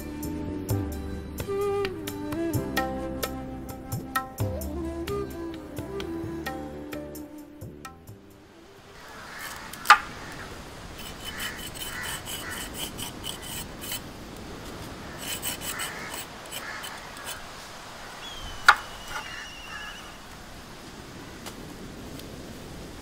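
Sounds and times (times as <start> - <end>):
knife scraping gourd skin: 9.4 - 10.0, 11.0 - 14.0, 15.1 - 17.5.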